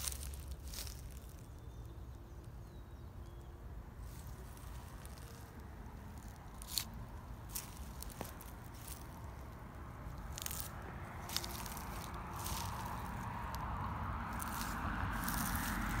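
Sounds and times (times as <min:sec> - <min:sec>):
footsteps crunching on dry leaves: 0:00.0 - 0:01.7, 0:04.0 - 0:16.0
low steady rumble: 0:03.6 - 0:16.0.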